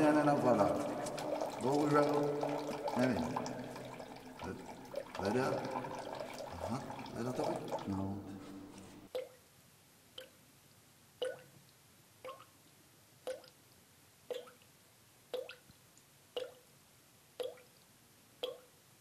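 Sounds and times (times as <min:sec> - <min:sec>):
water dripping into washbasin: 0:00.0 - 0:09.4, 0:10.1 - 0:10.4, 0:11.2 - 0:13.6, 0:14.3 - 0:14.7, 0:15.3 - 0:15.7, 0:16.3 - 0:16.7, 0:17.4 - 0:17.8, 0:18.4 - 0:18.8.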